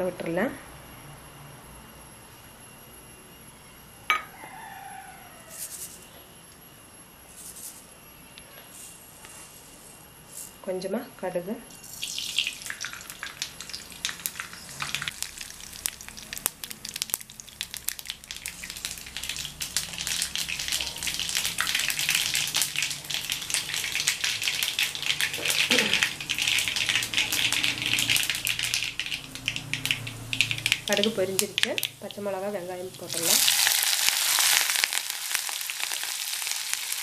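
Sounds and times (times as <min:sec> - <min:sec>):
seeds popping in hot oil: 0:11.7 - 0:37.0.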